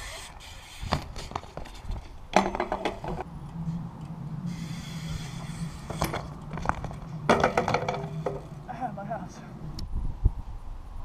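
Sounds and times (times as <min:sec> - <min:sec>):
bike tyres rolling on concrete: 0:00.0 - 0:09.6
bike clattering: 0:00.1 - 0:08.8
bike knocks: 0:00.9 - 0:03.3, 0:05.8 - 0:08.6.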